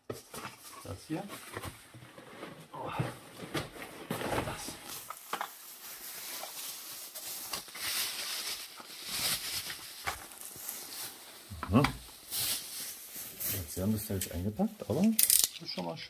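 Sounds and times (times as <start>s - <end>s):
packing wrap crinkling: 3.4s - 15.6s.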